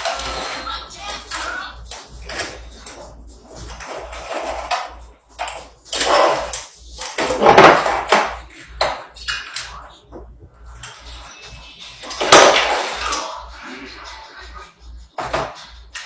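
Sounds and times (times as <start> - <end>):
bottles and containers clattering: 4.1 - 9.7.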